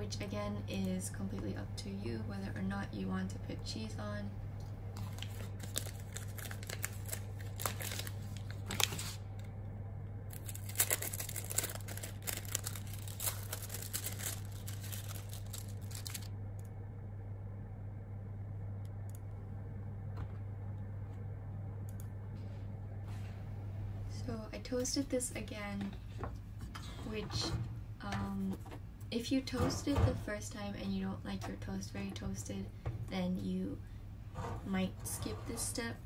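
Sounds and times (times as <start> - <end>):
steady low hum: 0.0 - 36.0
plastic wrapping crinkling: 5.0 - 9.2, 10.3 - 16.3.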